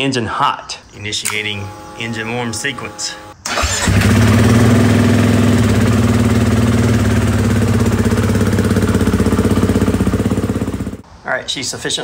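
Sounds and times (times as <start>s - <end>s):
motorcycle engine idling: 1.7s - 11.0s.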